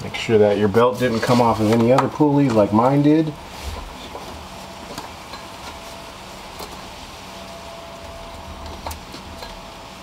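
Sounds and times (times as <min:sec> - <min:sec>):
steady background hum: 0:00.0 - 0:10.0
faint high whine: 0:05.7 - 0:10.0.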